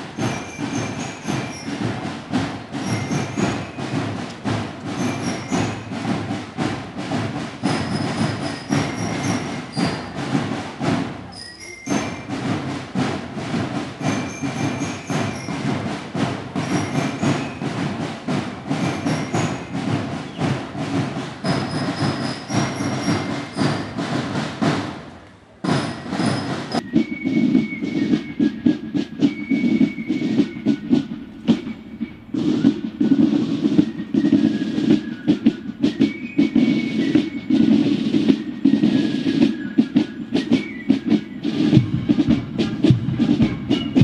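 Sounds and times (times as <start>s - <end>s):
marching band drums: 0.0s - 44.0s
high ringing notes: 11.3s - 12.7s.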